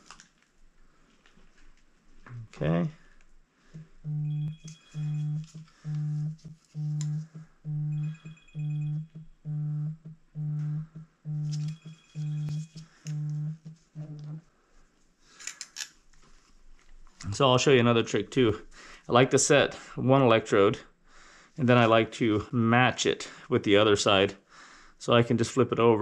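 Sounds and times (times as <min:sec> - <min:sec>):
faint high beeps: 0:03.8 - 0:14.4
low pulsing buzz tone: 0:03.8 - 0:14.4.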